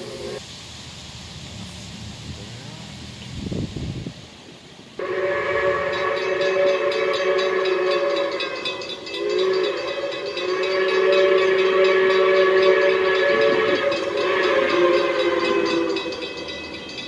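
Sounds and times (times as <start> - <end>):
steam locomotive whistle blast: 5.0 - 17.0.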